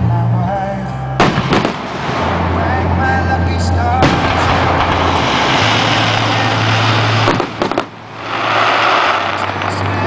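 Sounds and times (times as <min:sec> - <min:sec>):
sharp firework cracks: 0:01.2 - 0:02.6, 0:04.0 - 0:10.0
fireworks crackling: 0:01.2 - 0:10.0.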